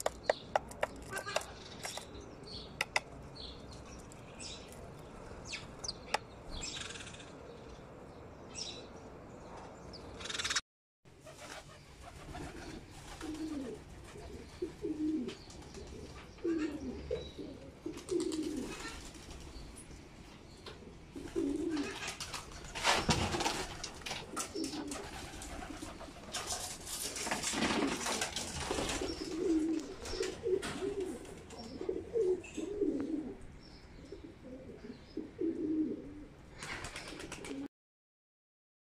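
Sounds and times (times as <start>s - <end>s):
pigeons cooing: 11.2s - 19.6s, 20.7s - 37.7s.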